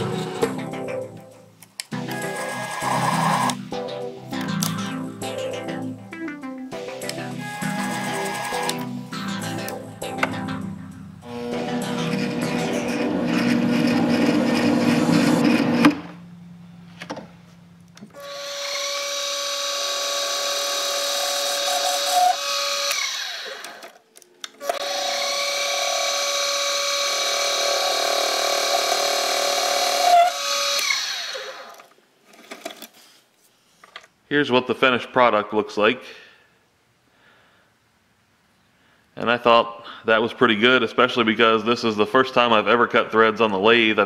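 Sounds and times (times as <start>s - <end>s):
spindle motor whine: 2.0s - 3.6s, 7.0s - 9.4s, 11.2s - 16.5s, 18.1s - 24.0s
metal lathe cutting: 2.1s - 3.6s, 7.4s - 8.8s, 11.3s - 16.0s, 18.2s - 23.8s, 24.8s - 31.7s.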